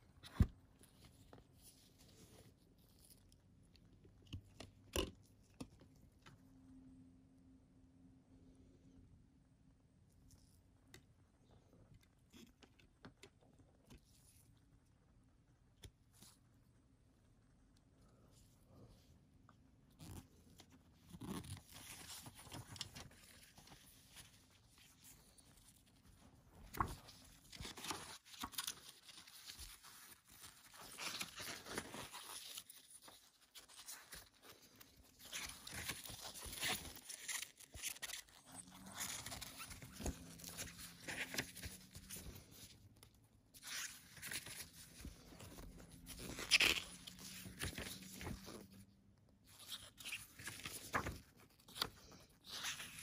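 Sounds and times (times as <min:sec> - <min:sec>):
paper booklet pages rustling: 0:19.9 - 0:53.0.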